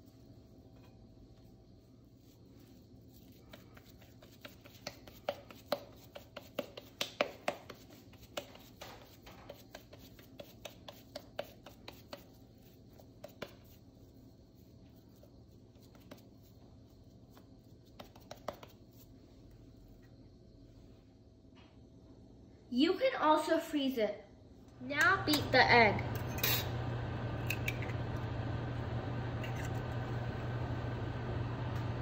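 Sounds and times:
hands patting sticky mixture: 2.2 - 19.2.

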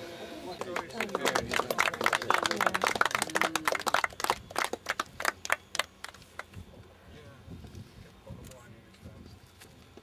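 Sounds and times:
faint voices: 0.2 - 4.5
people clapping: 0.5 - 6.5.

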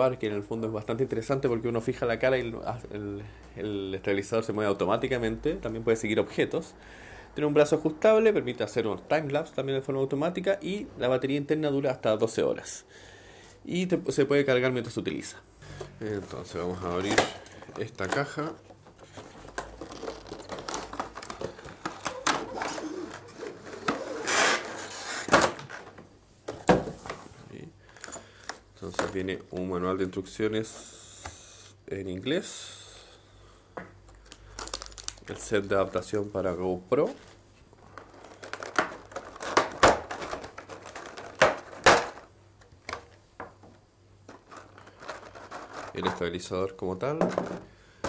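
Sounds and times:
cardboard and plastic rustling: 16.0 - 28.2, 34.4 - 42.3, 42.9 - 47.8
plastic tray crackling: 16.3 - 26.0, 37.1 - 42.3.

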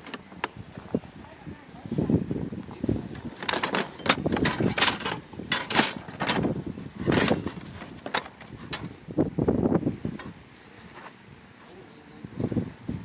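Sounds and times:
metal tools clattering in a box: 3.2 - 8.9.

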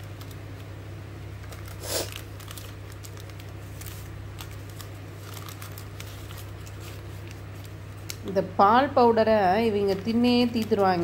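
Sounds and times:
steady low hum: 0.0 - 11.0
sachets rustling and crinkling: 1.4 - 8.3, 9.4 - 11.0.

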